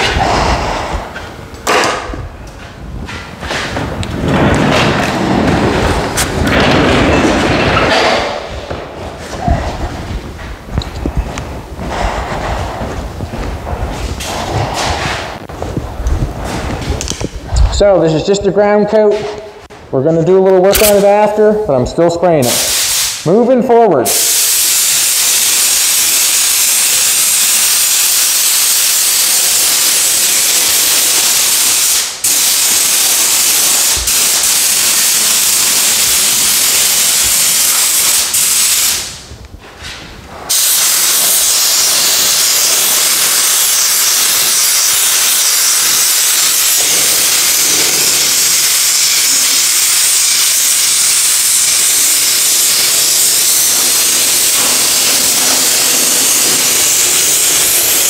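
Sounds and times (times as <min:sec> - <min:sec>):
paint spray gun hissing: 0:22.5 - 0:23.2, 0:24.1 - 0:39.2, 0:40.5 - 0:58.0.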